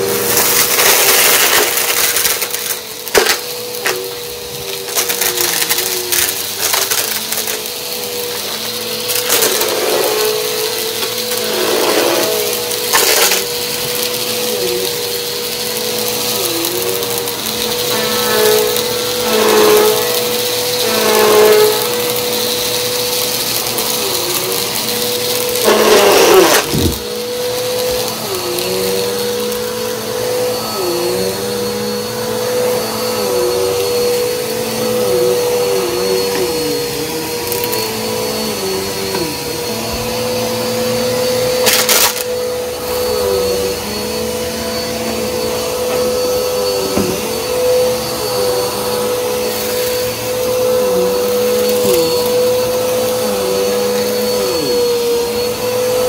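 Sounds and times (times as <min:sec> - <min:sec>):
vacuum cleaner motor whine: 0:00.0 - 0:56.0.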